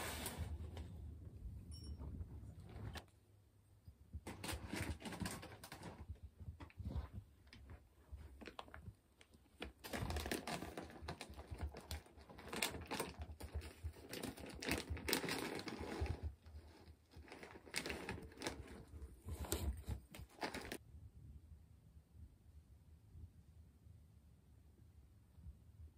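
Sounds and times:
rustling: 0.0 - 3.2, 4.2 - 20.8.

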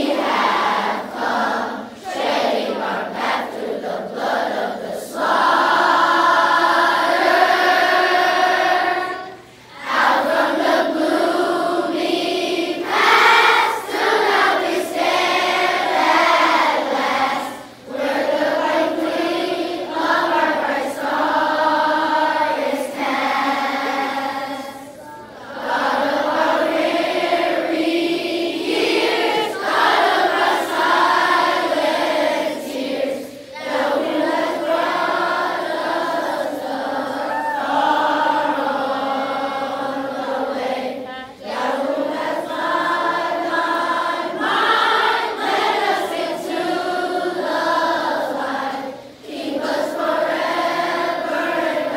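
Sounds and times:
children and adults singing together: 0.0 - 51.9.

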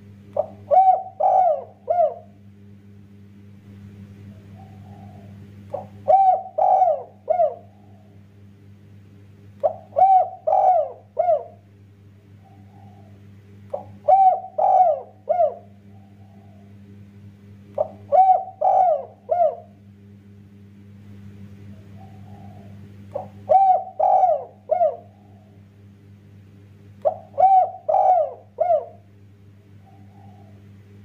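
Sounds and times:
dove cooing: 0.0 - 2.4, 4.2 - 8.3, 9.6 - 11.7, 12.3 - 16.9, 17.7 - 19.8, 21.6 - 25.8, 27.0 - 30.8
steady low hum: 0.0 - 31.0.

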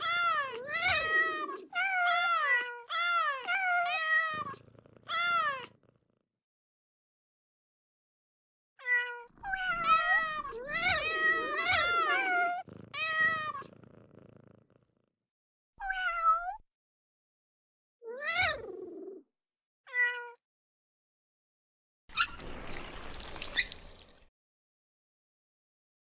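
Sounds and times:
cat meows sound effect: 8.8 - 12.6.

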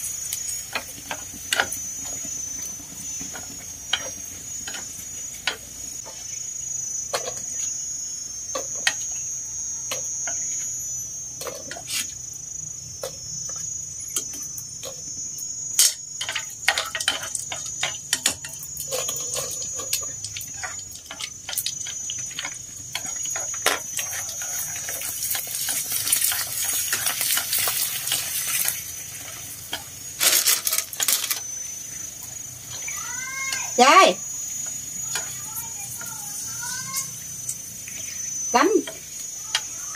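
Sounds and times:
crackers sizzling in hot oil: 0.0 - 39.9.

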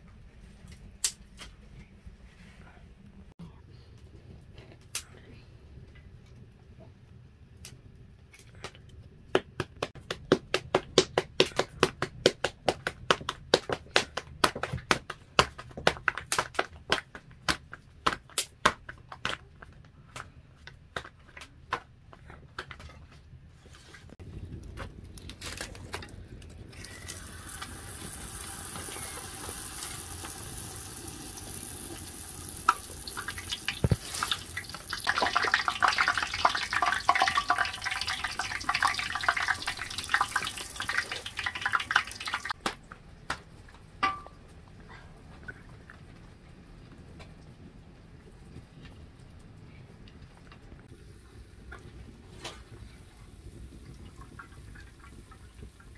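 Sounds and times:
hands slapping dough: 8.6 - 22.8.

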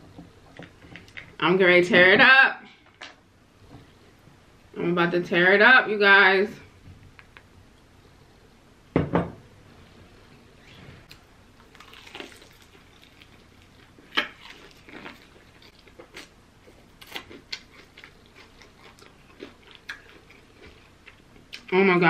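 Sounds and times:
crunchy chewing of fried chicken: 11.6 - 21.7.

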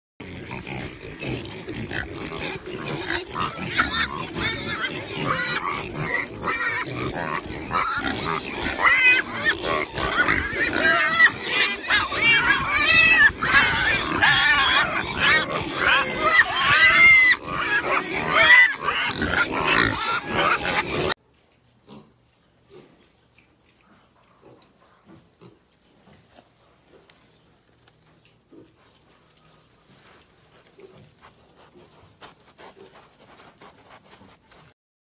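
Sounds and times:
pigs grunting: 0.2 - 21.2
pigs squealing: 0.2 - 21.2.

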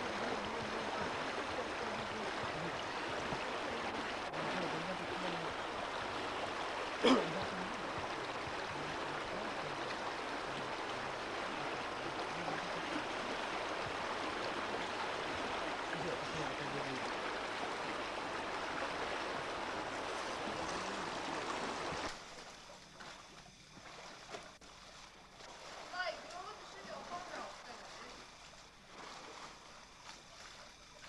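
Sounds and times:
river rapids rushing: 0.0 - 22.1.

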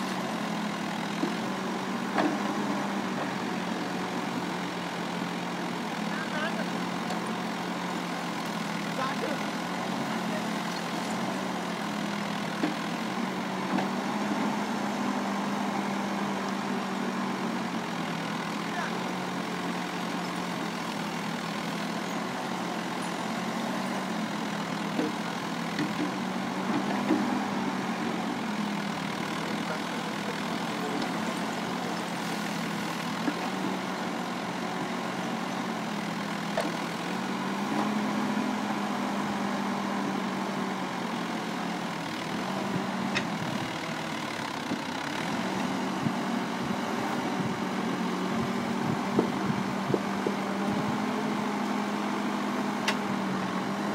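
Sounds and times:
diesel engine under load: 0.0 - 53.9.

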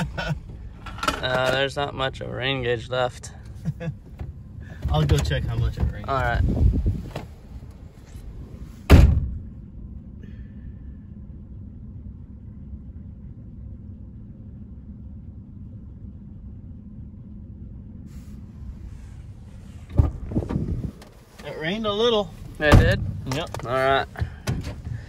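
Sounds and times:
truck engine idling: 0.0 - 25.0
truck door slamming: 8.8 - 9.5, 19.8 - 21.1, 22.4 - 25.0.

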